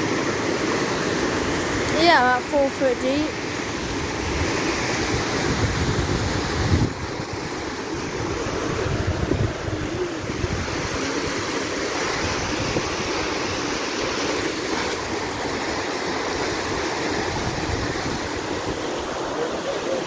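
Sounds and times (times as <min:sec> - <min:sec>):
wind buffeting microphone: 0:03.8 - 0:19.4.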